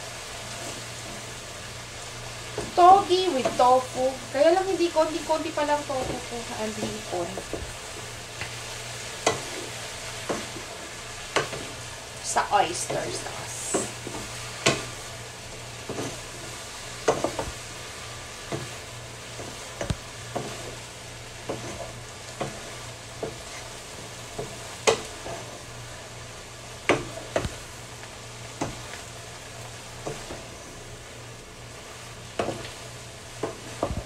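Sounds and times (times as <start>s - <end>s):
food sizzling in a frying pan: 0.0s - 34.0s
utensil knocking and scraping pan: 11.3s - 11.8s, 15.8s - 16.3s, 17.0s - 17.6s, 21.4s - 23.7s, 32.4s - 32.8s.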